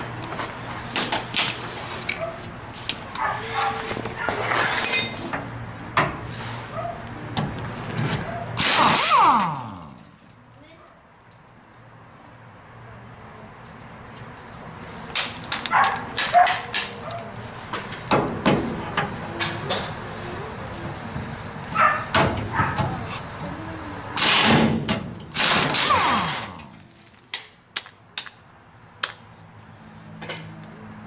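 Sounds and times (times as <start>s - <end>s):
air impact wrench bursts: 8.6s - 9.8s, 24.2s - 24.7s, 25.3s - 26.8s.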